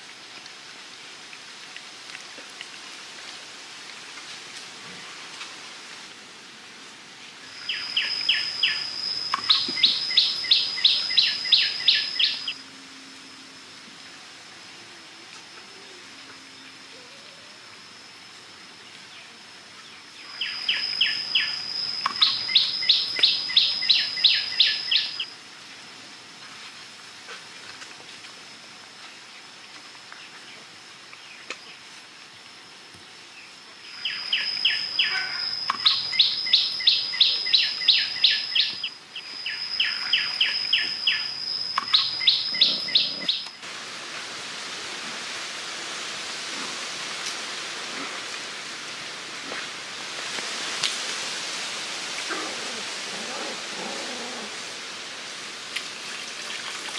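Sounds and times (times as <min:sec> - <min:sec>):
bird whistling and singing: 0:07.6 - 0:12.6, 0:34.0 - 0:43.5.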